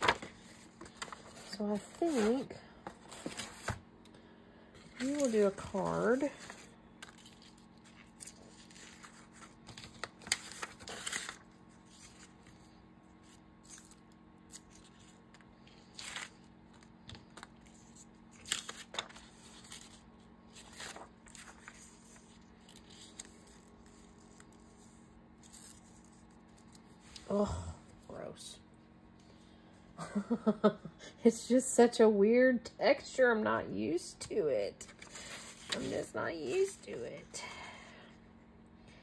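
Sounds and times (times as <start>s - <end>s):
paper rustling: 0.0s - 3.8s, 4.8s - 12.6s, 13.2s - 27.2s, 34.9s - 36.9s
faint steady hum: 0.0s - 39.0s.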